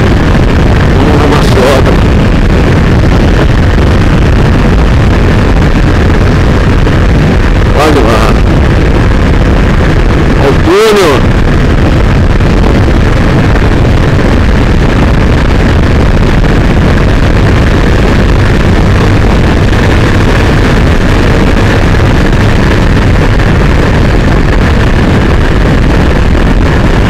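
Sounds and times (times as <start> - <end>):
motorcycle engine: 0.0 - 10.6
road noise: 0.0 - 27.0
wind rush on microphone: 0.0 - 27.0.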